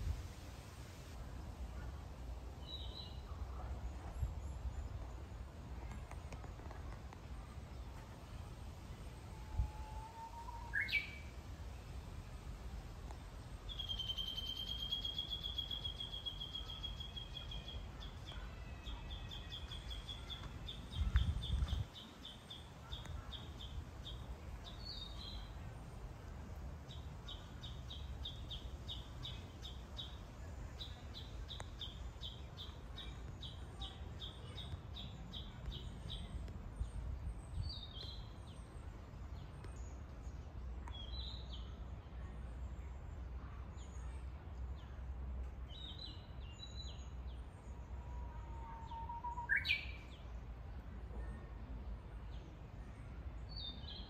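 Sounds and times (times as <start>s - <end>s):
bird whistling song: 10.2s - 11.3s, 13.7s - 17.7s, 48.9s - 50.0s
bird chirps: 13.7s - 21.7s.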